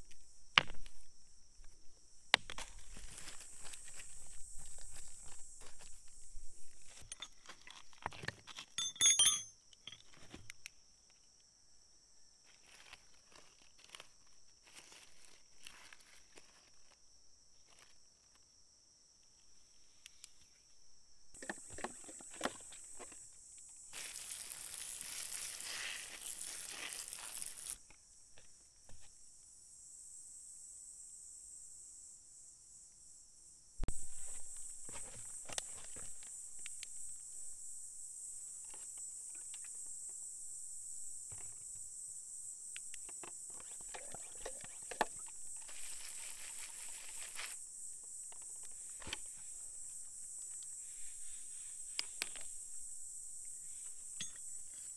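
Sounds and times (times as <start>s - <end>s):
high insect drone: 0.0s - 54.9s
hands rustling dry leaves: 2.6s - 6.0s, 12.5s - 16.9s, 24.0s - 27.8s, 45.7s - 47.6s
stones clicking together: 26.2s - 27.8s.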